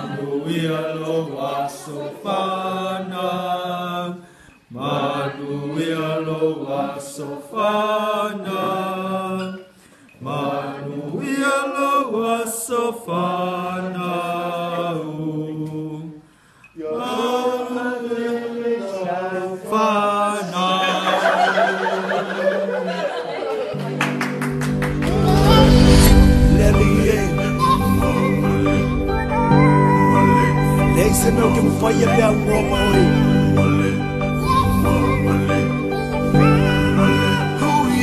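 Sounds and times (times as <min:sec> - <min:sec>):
voices singing together: 0:00.0 - 0:23.3, 0:24.6 - 0:38.0.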